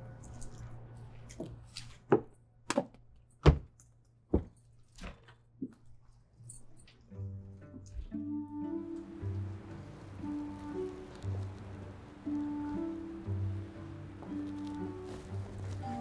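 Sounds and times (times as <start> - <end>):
soft music tones: 0.0 - 1.9, 5.8 - 16.0.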